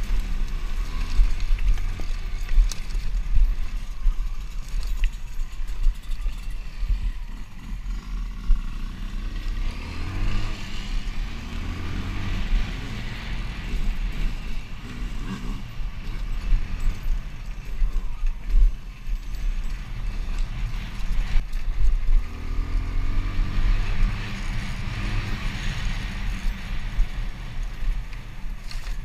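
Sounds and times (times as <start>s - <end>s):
dirt bike engine revving: 5.9s - 17.6s.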